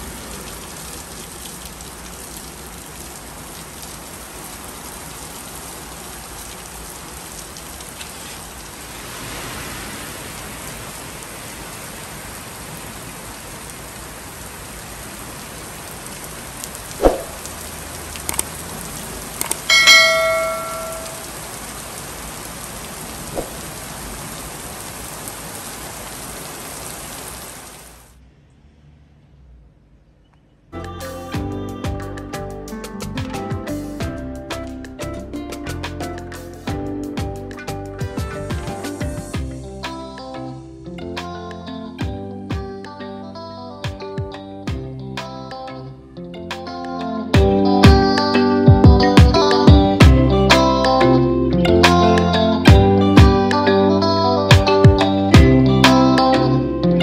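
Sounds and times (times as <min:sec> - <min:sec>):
heavy rain falling: 0:00.0 - 0:28.2, 0:31.3 - 0:40.3
sharp knock: 0:17.0 - 0:17.4
clicks: 0:18.2 - 0:18.5, 0:19.4 - 0:19.7
short bell-like ring: 0:19.7 - 0:21.3.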